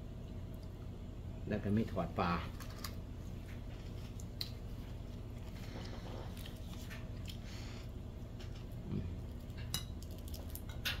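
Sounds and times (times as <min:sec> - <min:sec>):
steady low hum: 0:00.0 - 0:11.0
chewing: 0:03.6 - 0:07.8.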